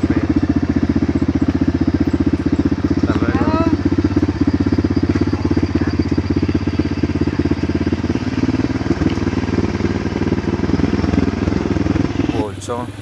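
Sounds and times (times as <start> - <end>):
motorcycle engine running at low revs: 0.0 - 13.0.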